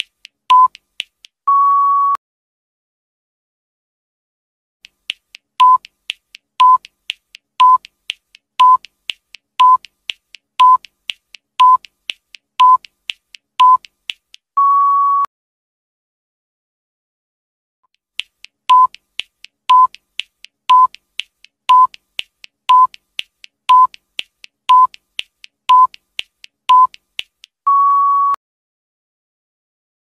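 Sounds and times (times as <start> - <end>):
soft ticks: 0.0 - 1.4, 4.8 - 14.5, 18.2 - 27.6
short electronic beeps: 0.5 - 0.8, 1.5 - 2.2, 5.6 - 5.9, 6.6 - 6.8, 7.6 - 7.9, 8.6 - 8.8, 9.6 - 9.9, 10.6 - 10.9, 11.6 - 11.9, 12.6 - 12.9, 13.6 - 13.9, 14.6 - 15.3, 18.7 - 19.0, 19.7 - 19.9, 20.7 - 20.9, 21.7 - 21.9, 22.7 - 23.0, 23.7 - 24.0, 24.7 - 25.0, 25.7 - 26.0, 26.7 - 26.9, 27.7 - 28.4
long electronic beep: 14.6 - 15.3, 27.7 - 28.4.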